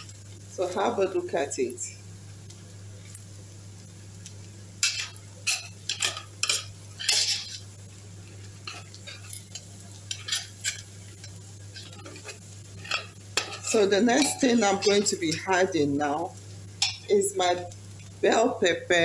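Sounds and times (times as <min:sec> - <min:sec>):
low steady hum: 0:00.0 - 0:19.0
metal spoon scraping a pot: 0:04.8 - 0:07.6, 0:08.6 - 0:15.4.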